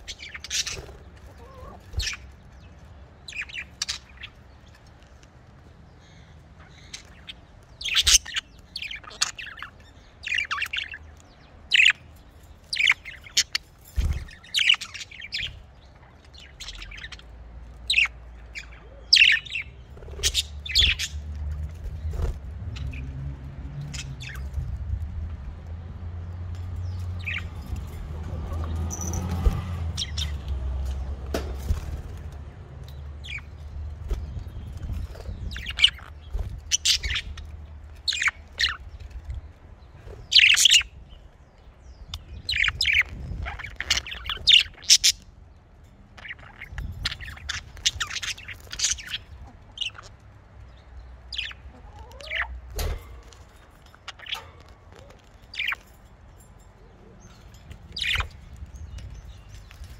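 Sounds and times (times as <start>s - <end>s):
budgerigars chirping: 0.0s - 4.7s, 6.1s - 11.0s, 12.7s - 21.3s, 34.3s - 39.0s, 40.2s - 41.1s, 41.9s - 45.3s, 46.2s - 50.2s, 51.3s - 52.6s, 54.0s - 55.8s, 57.9s - 59.9s.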